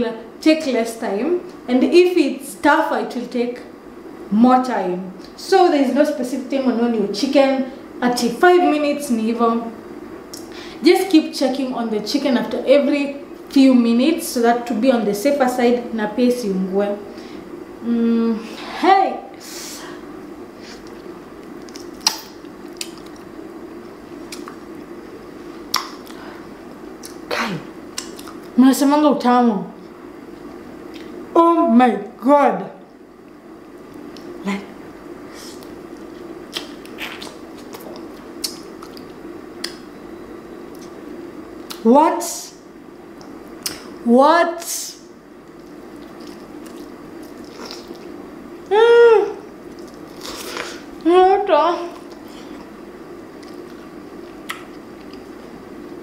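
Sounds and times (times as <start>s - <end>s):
faint steady hum: 0.0s - 56.0s
person humming mmm: 17.8s - 18.4s
person chewing food: 20.8s - 24.6s, 35.6s - 39.8s, 45.4s - 48.2s, 49.6s - 51.0s, 51.9s - 56.0s
wet lip smacks: 21.6s - 23.3s, 24.3s - 24.6s, 25.7s - 26.2s, 27.9s - 28.5s, 36.5s - 39.9s, 43.2s - 43.9s, 54.4s - 55.2s.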